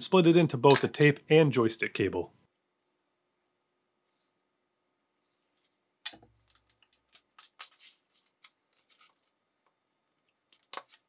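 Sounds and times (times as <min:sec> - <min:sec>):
cable rustling and clicking: 0:05.6 - 0:11.0.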